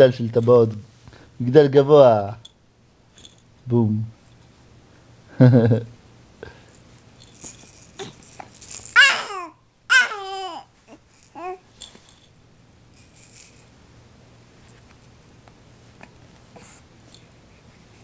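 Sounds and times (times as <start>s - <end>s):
baby toys rattling and clicking: 7.1s - 9.5s, 10.2s - 13.7s
baby squealing and babbling: 8.8s - 11.6s.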